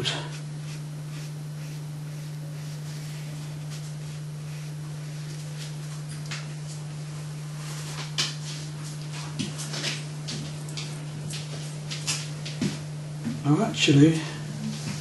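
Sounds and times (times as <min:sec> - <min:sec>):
steady low hum: 0:00.0 - 0:15.0
paintbrush swishing on paper: 0:00.3 - 0:06.9, 0:07.5 - 0:10.0.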